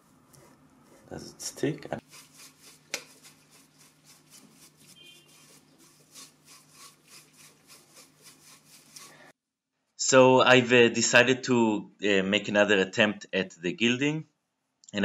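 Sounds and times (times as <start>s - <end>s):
soft brush swishing: 0.0s - 9.3s.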